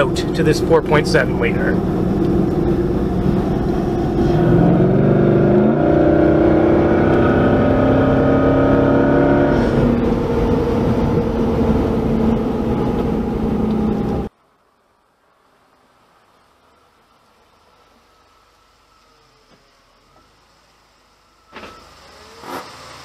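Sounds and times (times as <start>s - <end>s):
air intake whooshing: 0.0s - 14.3s
car engine accelerating: 0.0s - 14.3s, 17.2s - 23.0s.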